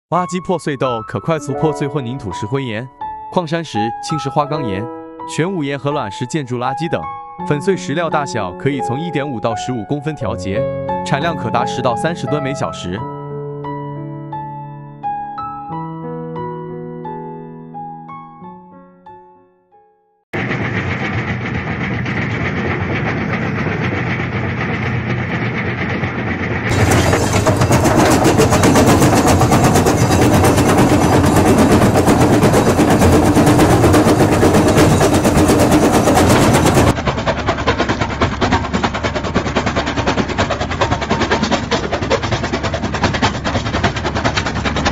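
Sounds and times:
crusher bucket clattering: 20.4s - 44.9s
excavator engine: 20.4s - 44.9s.

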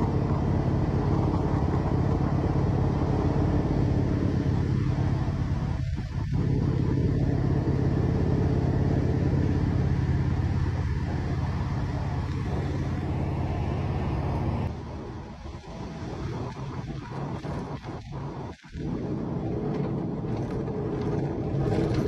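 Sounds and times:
road and wind noise: 0.0s - 22.0s
vehicle engine cruising: 0.0s - 22.0s.

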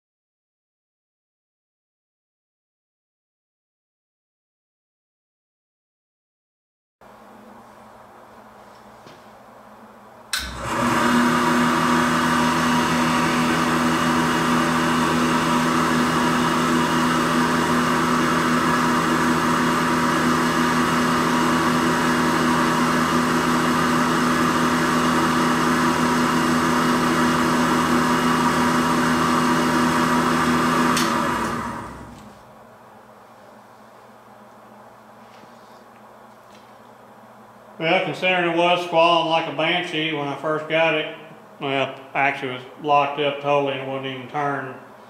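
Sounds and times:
valve grinder running: 10.4s - 32.4s.

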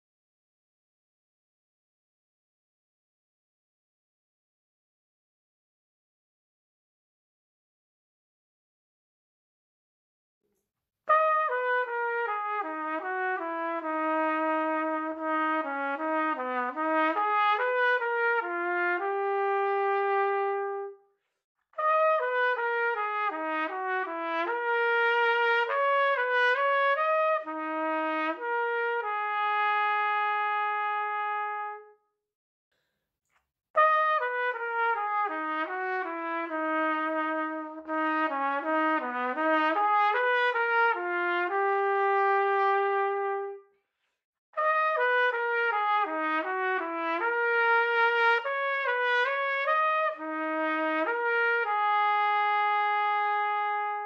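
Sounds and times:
solo trumpet melody: 11.1s - 21.1s, 21.8s - 32.0s, 33.8s - 43.7s, 44.6s - 54.0s.

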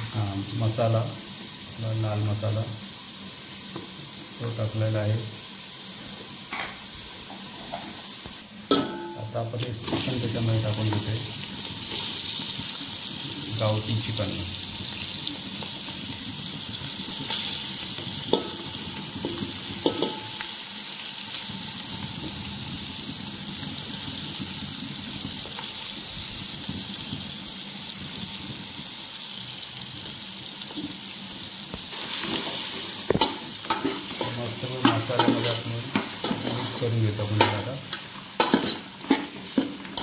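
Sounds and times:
chicken sizzling in hot oil: 0.0s - 40.0s
spoon scraping and clinking pot: 19.3s - 20.3s, 38.4s - 40.0s.

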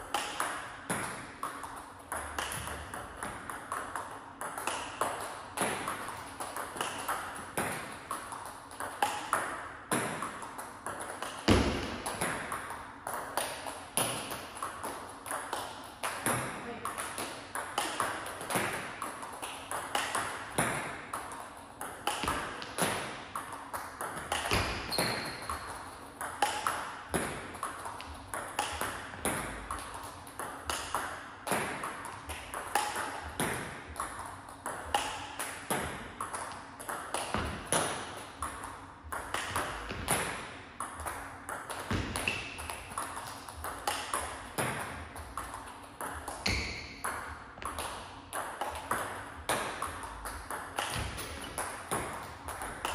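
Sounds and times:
table tennis ball clicks: 0.1s - 52.9s.

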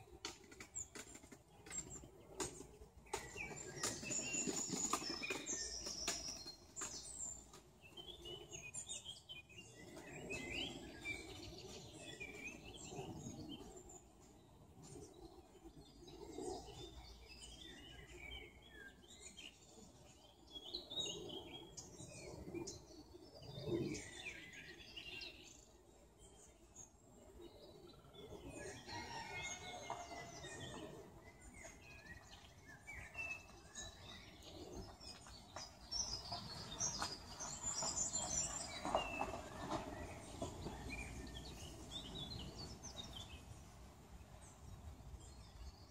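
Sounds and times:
songbirds chirping and singing: 0.0s - 45.9s.

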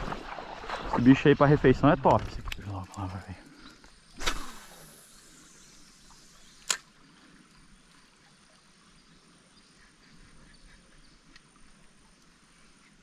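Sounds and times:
sharp click: 6.6s - 6.9s
small ticks: 9.8s - 13.0s.

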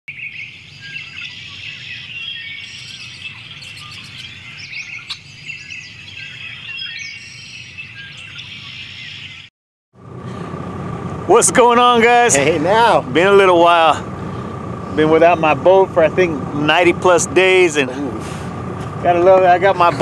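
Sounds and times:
many birds chirping: 0.1s - 9.5s, 12.1s - 20.0s.

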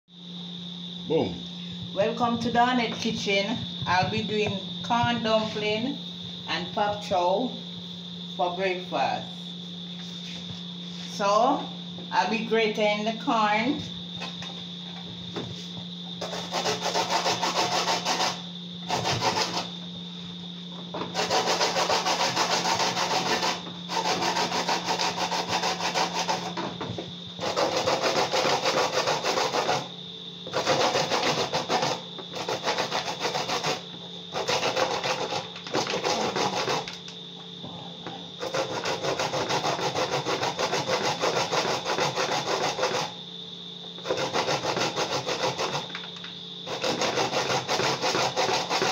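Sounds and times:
corn cob rasping on grater: 16.2s - 19.7s, 21.1s - 26.6s, 27.4s - 29.9s, 30.5s - 37.0s, 38.4s - 43.2s, 44.0s - 46.0s, 46.6s - 48.9s.

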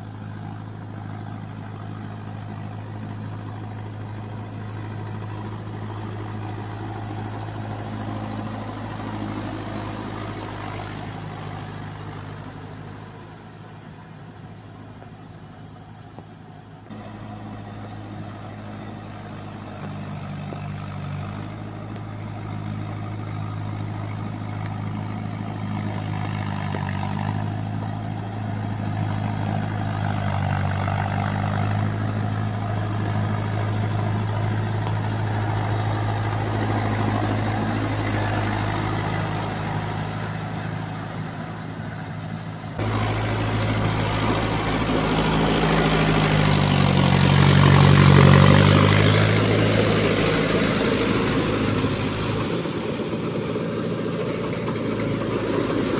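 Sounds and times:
tractor diesel engine: 0.0s - 55.9s
rotavator churning mud: 16.9s - 42.2s, 42.8s - 55.9s.

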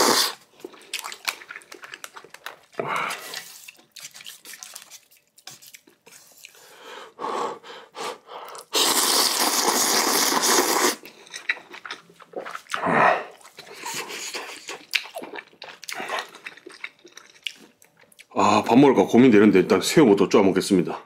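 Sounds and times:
loud noodle slurp: 0.0s - 0.4s, 8.7s - 11.1s
wet chewing and mouth smacks: 0.5s - 6.7s, 9.3s - 18.4s.

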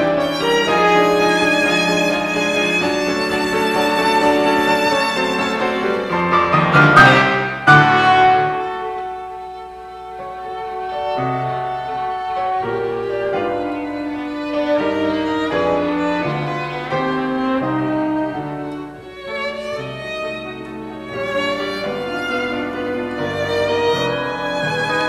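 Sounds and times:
piano: 0.0s - 25.0s
violin: 0.0s - 25.0s
french horn: 6.7s - 9.2s.

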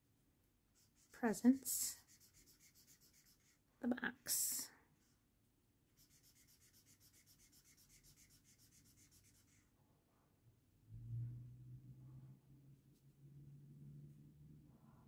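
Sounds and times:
marker scratching on paper: 0.8s - 3.6s, 6.0s - 9.6s.

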